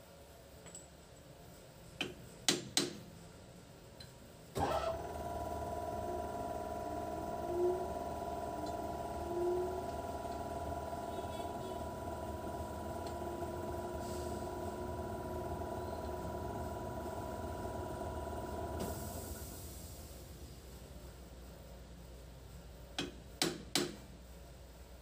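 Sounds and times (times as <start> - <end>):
machine hum: 4.6 - 21.0.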